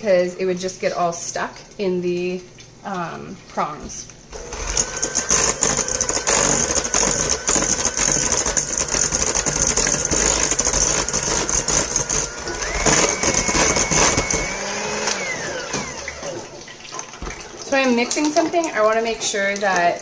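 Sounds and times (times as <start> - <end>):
electric hand mixer whining: 4.3 - 16.6.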